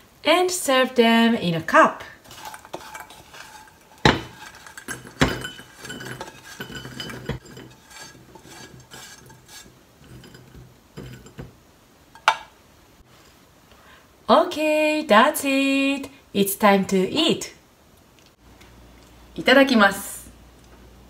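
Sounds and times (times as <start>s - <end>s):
pan and beans clinking on bowl: 2.2s - 11.6s
spatula scraping pan: 2.2s - 11.6s.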